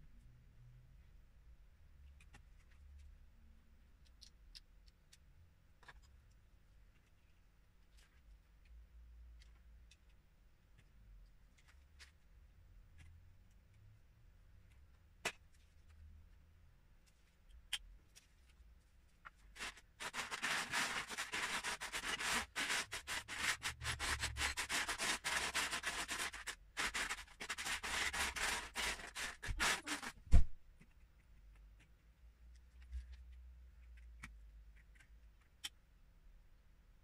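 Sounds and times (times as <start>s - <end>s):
sharp thump: 30.3s - 30.6s.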